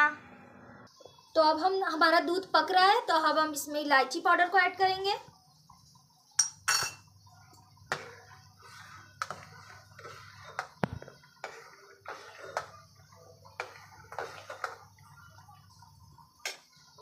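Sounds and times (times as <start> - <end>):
spoon clinking and scraping pot: 6.3 - 15.2.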